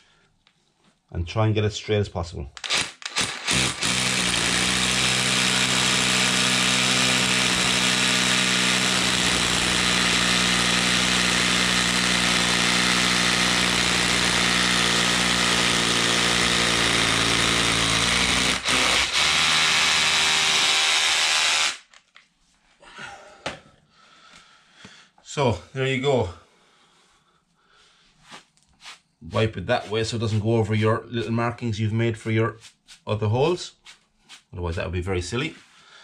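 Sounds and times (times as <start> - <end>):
hammer drill boring into asphalt: 2.6 - 22.0.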